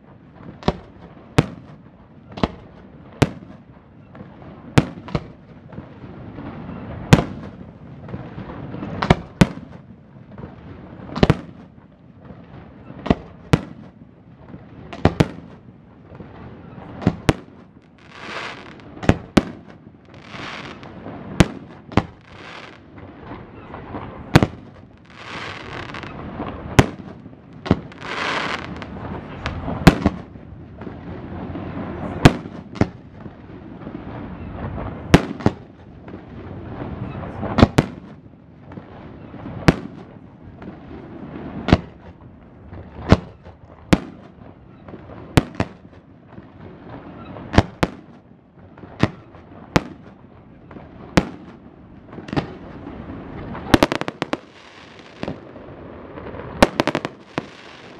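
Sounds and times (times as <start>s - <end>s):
fireworks bursting with sharp bangs: 0.0s - 57.9s.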